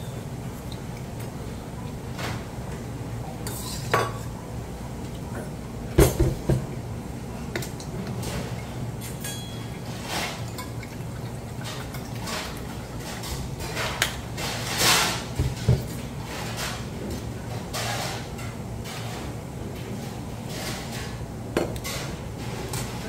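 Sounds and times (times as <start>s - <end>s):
steel bowls and spoons clinking: 9.0s - 11.0s.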